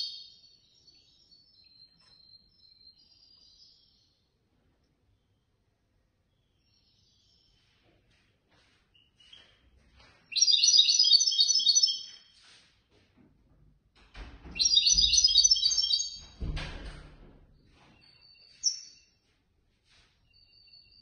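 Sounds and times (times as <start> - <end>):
bird twittering: 10.3 - 12.2, 14.6 - 16.2.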